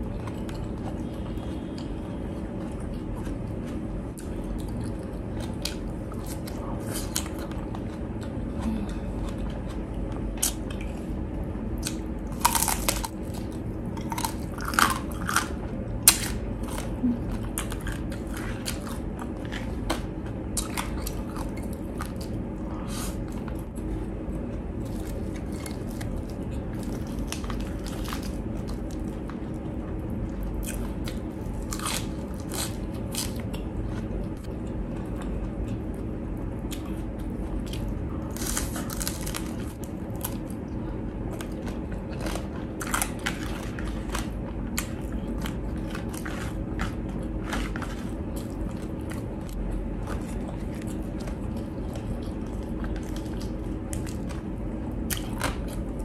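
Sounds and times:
steady low hum: 0:00.0 - 0:56.0
crunching bites of crispy pork: 0:11.7 - 0:23.6, 0:24.6 - 0:56.0.

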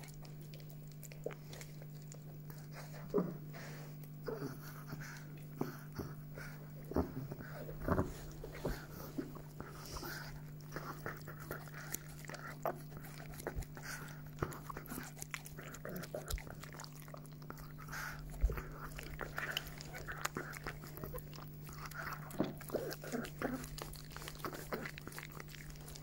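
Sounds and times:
steady low hum: 0:00.0 - 0:26.0
dog licking wet smacking: 0:09.1 - 0:26.0.

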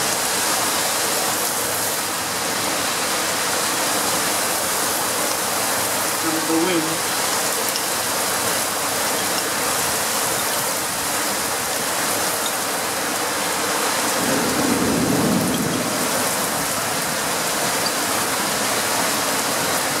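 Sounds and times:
heavy rain falling: 0:00.0 - 0:20.0
low thunder rumble: 0:14.2 - 0:17.8.

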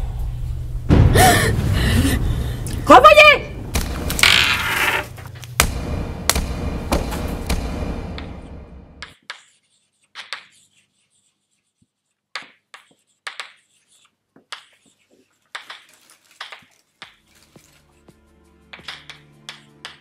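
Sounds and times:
pens tapping on desks: 0:09.0 - 0:09.5, 0:10.1 - 0:10.6, 0:12.3 - 0:13.7, 0:14.4 - 0:17.2, 0:18.7 - 0:20.0.

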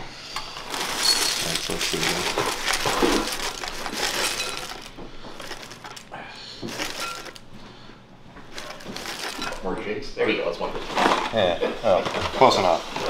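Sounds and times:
cereal poured into glass bowl: 0:00.6 - 0:06.0.

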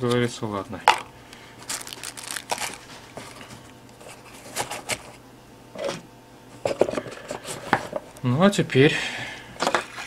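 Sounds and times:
packaging rustling: 0:01.6 - 0:05.1.

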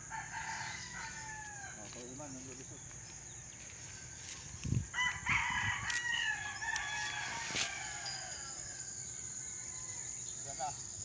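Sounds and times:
rooster crowing: 0:00.0 - 0:01.8, 0:04.9 - 0:10.4.

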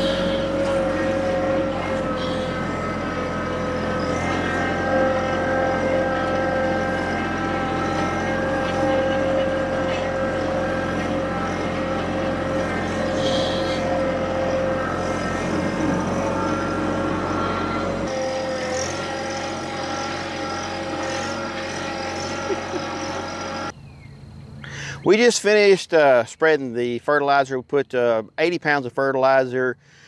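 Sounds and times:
tractor diesel engine running: 0:00.0 - 0:25.8.

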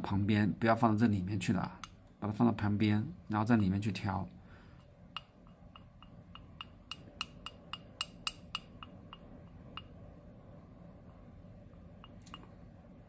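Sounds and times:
brush clinking against porcelain dish: 0:05.1 - 0:10.0.

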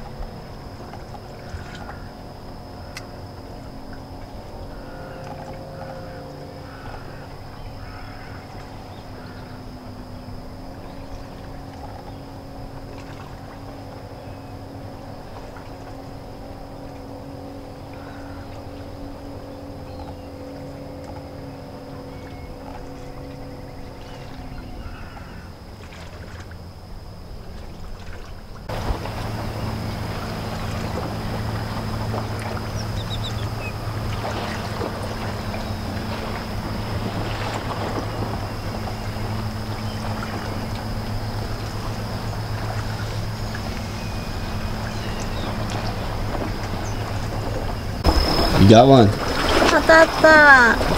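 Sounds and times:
boat engine rumbling: 0:00.0 - 0:50.9
water wash: 0:00.0 - 0:50.9
faint light ticks: 0:02.9 - 0:03.1.

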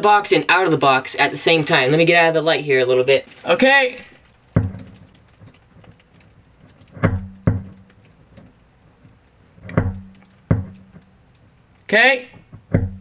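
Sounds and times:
subwoofer pops: 0:04.5 - 0:11.5, 0:12.3 - 0:13.0.

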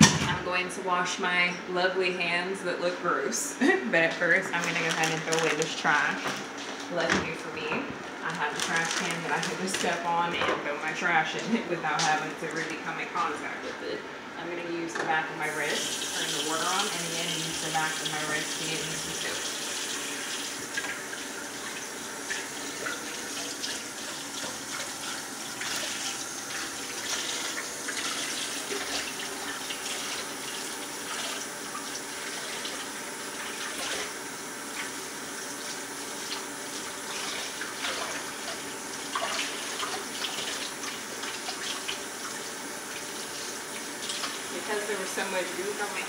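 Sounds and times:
faucet running into sink: 0:15.4 - 0:46.0.

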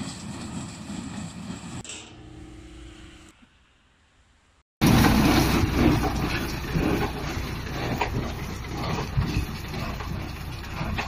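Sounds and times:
tractor engine under load: 0:00.0 - 0:01.8, 0:04.8 - 0:11.0
hay baler knocking clatter: 0:04.8 - 0:11.0.

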